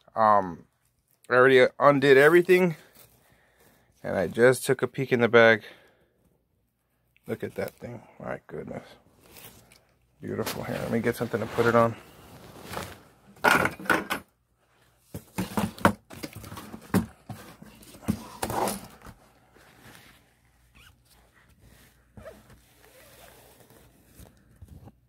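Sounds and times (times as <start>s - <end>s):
material rustling: 9.1s - 13.3s, 17.5s - 24.9s
plastic items knocking: 15.1s - 18.8s.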